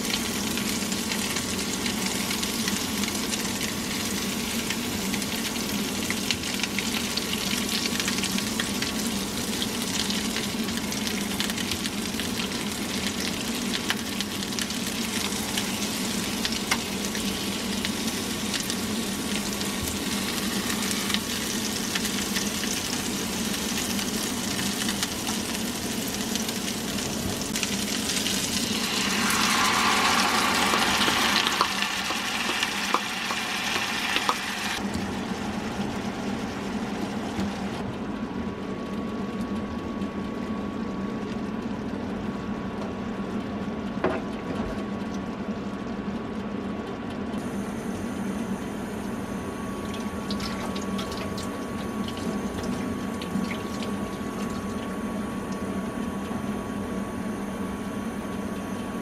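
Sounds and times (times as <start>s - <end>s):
patties sizzling in frying pan: 0.0s - 34.8s
sauce poured into hot pan: 28.4s - 34.8s.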